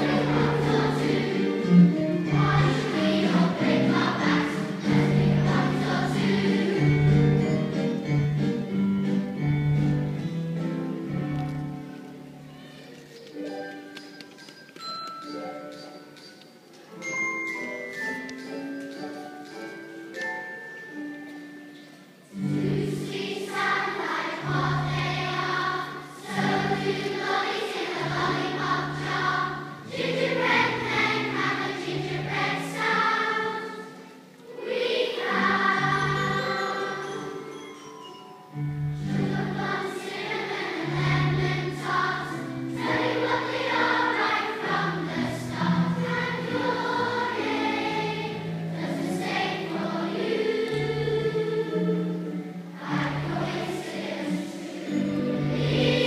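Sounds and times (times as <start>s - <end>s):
choir singing: 0.0s - 7.6s, 22.4s - 37.6s, 39.0s - 56.0s
low accompanying notes: 0.0s - 13.3s, 20.8s - 56.0s.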